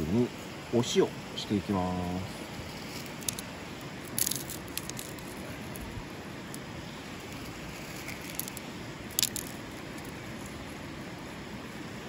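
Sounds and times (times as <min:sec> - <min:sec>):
salt rattling onto meat: 0:04.1 - 0:05.6.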